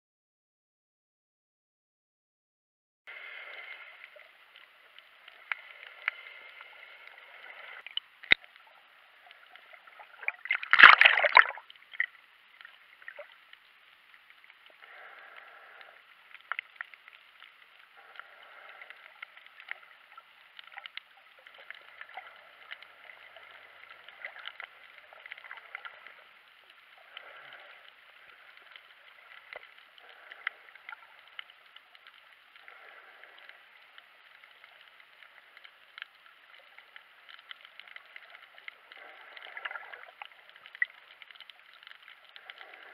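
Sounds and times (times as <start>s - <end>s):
muffled underwater noise: 3.1s - 11.2s, 11.8s - 42.9s
small clicks: 3.4s - 9.8s, 11.6s - 42.9s
rush of water: 7.3s - 16.6s.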